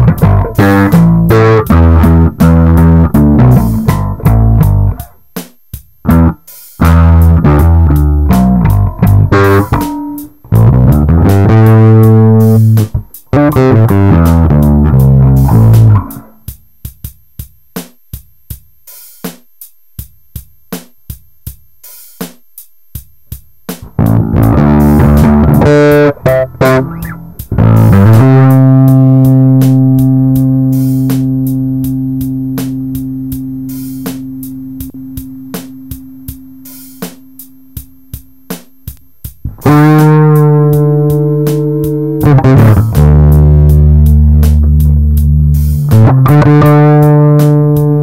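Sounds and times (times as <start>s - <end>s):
electric bass plucked notes: 0.0s - 5.1s, 6.0s - 16.4s, 23.8s - 38.6s, 39.5s - 48.0s
muted bass notes clicking: 0.0s - 5.2s, 6.0s - 16.4s, 23.8s - 48.0s.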